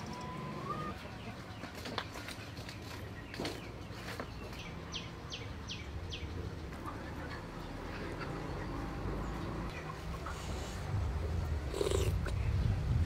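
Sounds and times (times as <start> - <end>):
bird chirping: 0.0 - 6.8.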